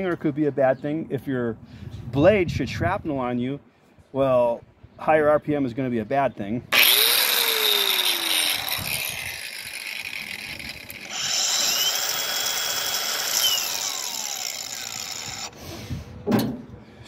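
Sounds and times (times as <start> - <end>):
angle grinder high whine: 6.7 - 15.6
angle grinder winding down: 6.7 - 15.6.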